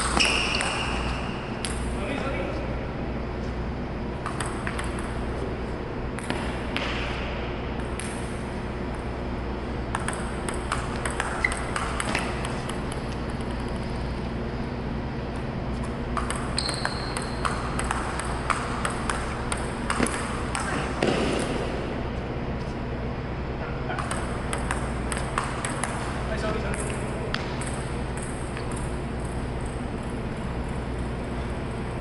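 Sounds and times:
table tennis ball clicking: 0.0 - 1.9, 4.2 - 5.2, 9.9 - 14.2, 16.2 - 20.7, 23.9 - 26.1
low hum: 0.0 - 32.0.

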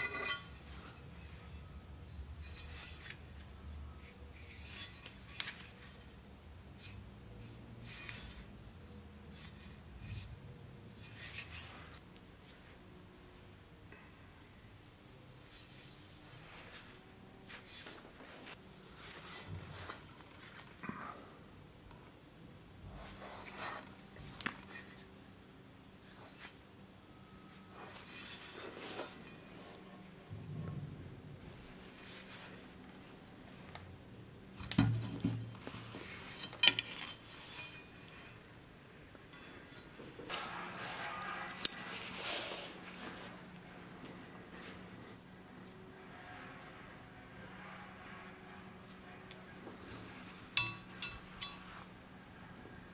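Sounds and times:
rustling and handling noises: 0.0 - 12.9, 14.8 - 21.3, 22.8 - 25.4, 26.0 - 45.3, 48.8 - 52.0
metallic clinks of knife blades: 50.6 - 51.7.

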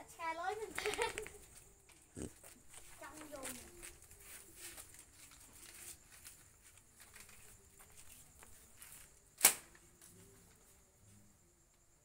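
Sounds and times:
sharp crack: 9.4 - 9.8.

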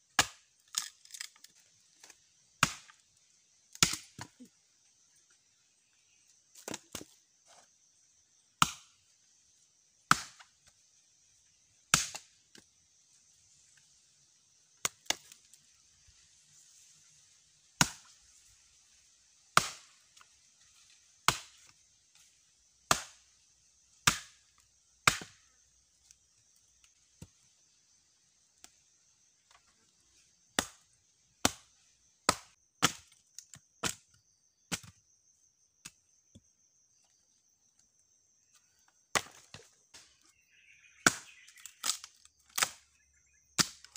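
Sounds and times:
hatchet chopping wood: 0.1 - 1.3, 2.0 - 3.0, 3.7 - 4.4, 8.6 - 9.0, 10.1 - 10.6, 11.9 - 12.6, 17.8 - 18.1, 19.5 - 19.9, 21.2 - 21.7, 22.8 - 23.2, 24.0 - 24.4, 25.0 - 25.5, 30.6 - 35.0, 39.1 - 39.7, 41.0 - 42.9, 43.6 - 43.9.

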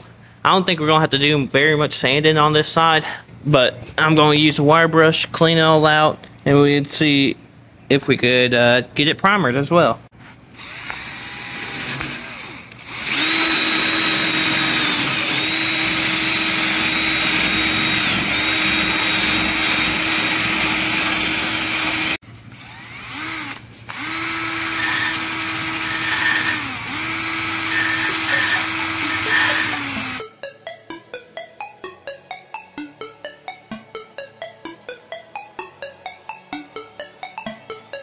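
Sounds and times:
power tool wire brush whining: 10.5 - 30.2.

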